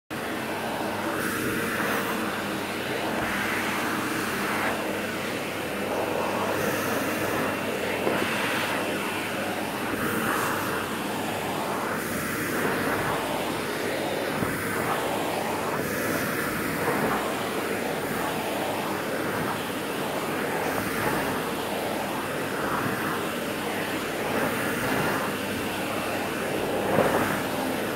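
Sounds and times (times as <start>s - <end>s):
vacuum cleaner running: 0.1s - 27.9s.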